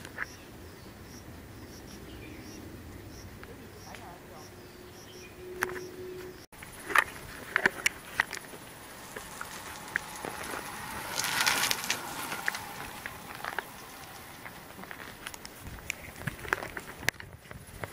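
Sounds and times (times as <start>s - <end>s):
footsteps on paved path: 3.4s - 17.9s
rustling: 6.5s - 17.9s.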